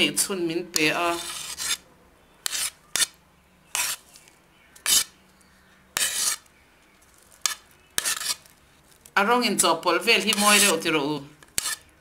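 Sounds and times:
utensil scraping ceramic plate: 0:00.8 - 0:01.8, 0:02.4 - 0:04.0, 0:04.8 - 0:05.1, 0:06.0 - 0:06.5, 0:07.4 - 0:08.5, 0:10.3 - 0:10.8, 0:11.6 - 0:11.9.

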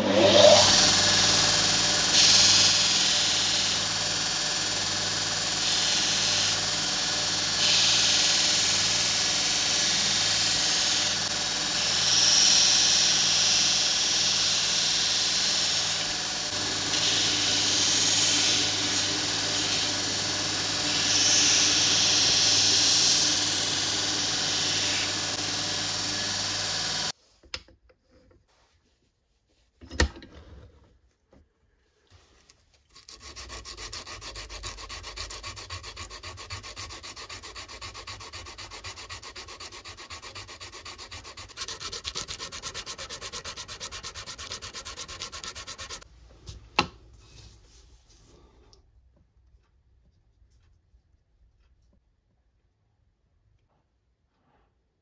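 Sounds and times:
belt grinder grinding wood: 0:00.0 - 0:27.1, 0:32.9 - 0:46.1
electric motor humming: 0:00.0 - 0:27.1, 0:33.0 - 0:46.0.

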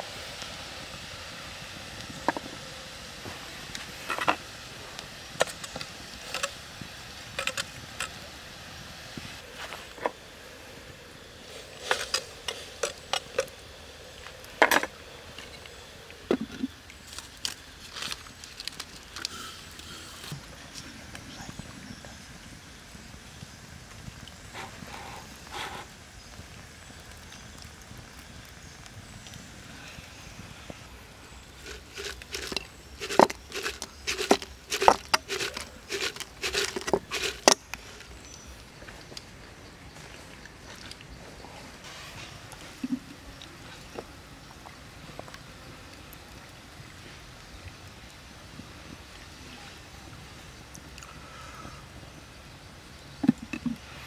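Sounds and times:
ladle scraping clay pot: 0:31.6 - 0:37.7.

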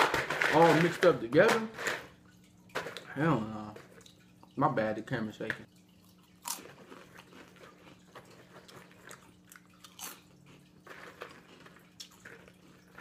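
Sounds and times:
crunchy snacks being chewed: 0:06.0 - 0:13.0.

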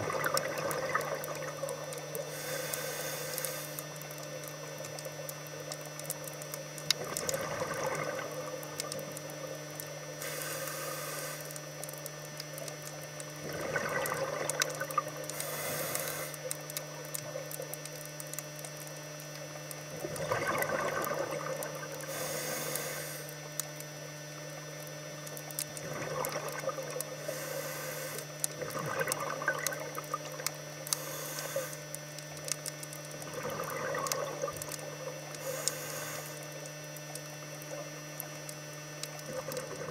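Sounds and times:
exhaust bubbles gurgling: 0:00.0 - 0:02.4, 0:03.7 - 0:10.4, 0:11.4 - 0:18.5, 0:19.8 - 0:22.7, 0:24.6 - 0:39.9
steady low hum: 0:00.0 - 0:39.9
regulator hiss on inhale: 0:02.1 - 0:04.0, 0:10.2 - 0:11.8, 0:15.3 - 0:16.6, 0:22.0 - 0:23.5, 0:27.0 - 0:28.5, 0:30.9 - 0:32.0, 0:35.3 - 0:36.7.

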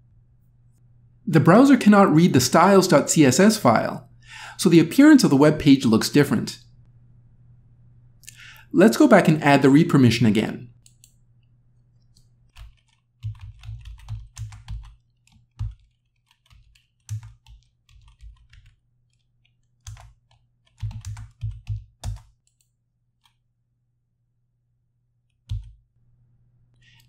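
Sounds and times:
computer keyboard typing: 0:12.1 - 0:22.6, 0:25.5 - 0:25.8.

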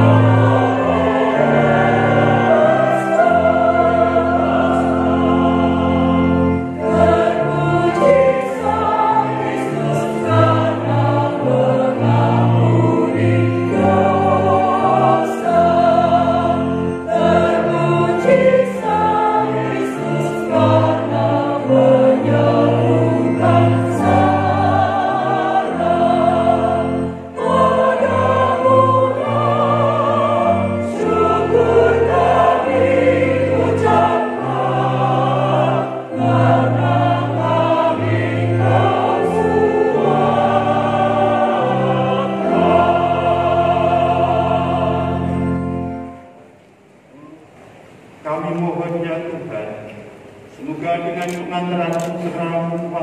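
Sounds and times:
choir singing a hymn: 0:00.0 - 0:46.6.

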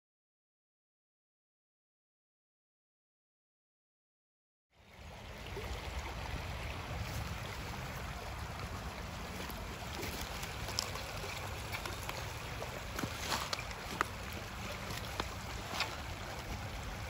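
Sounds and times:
footsteps on gravel: 0:09.3 - 0:16.6.

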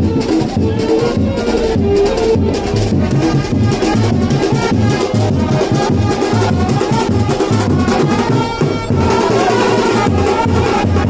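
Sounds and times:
music with fast drum beat: 0:00.0 - 0:11.0.

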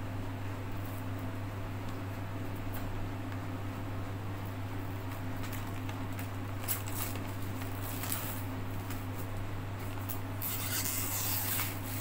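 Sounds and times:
plastic shrink-wrap crinkling: 0:05.0 - 0:12.0.

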